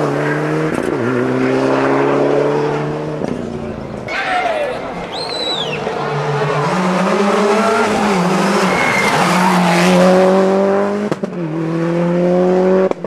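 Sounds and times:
rally car engine revving: 0:00.0 - 0:13.0
tyre squeal: 0:07.5 - 0:09.6.

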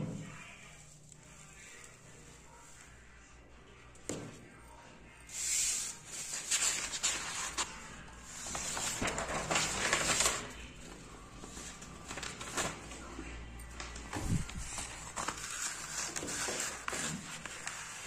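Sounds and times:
paper rustling and crackling: 0:05.5 - 0:18.0.

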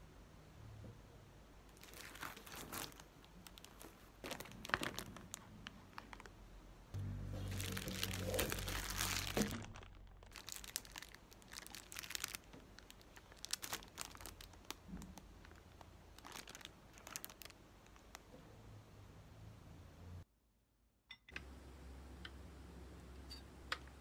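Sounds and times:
plastic packaging crinkling: 0:01.7 - 0:06.4, 0:07.2 - 0:18.2.

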